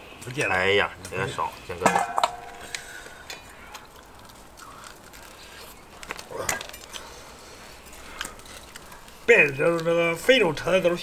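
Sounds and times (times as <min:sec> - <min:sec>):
man chewing meat: 0:02.4 - 0:09.3.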